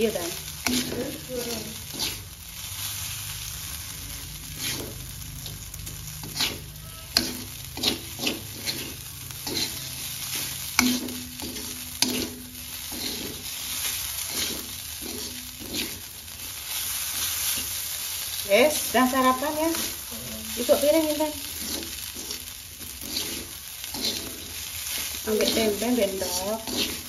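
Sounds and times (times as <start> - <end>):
metal spatula scraping a pan: 0.0 - 27.0
rice sizzling in a wok: 0.0 - 27.0.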